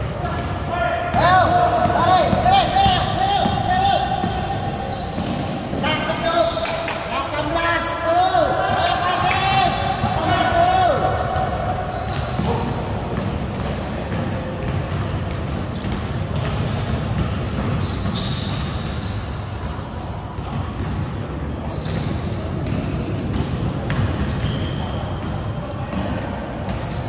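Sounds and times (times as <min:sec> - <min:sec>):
sneakers squeaking: 0:00.1 - 0:07.1, 0:08.3 - 0:27.0
basketball bouncing on floor: 0:12.1 - 0:18.8.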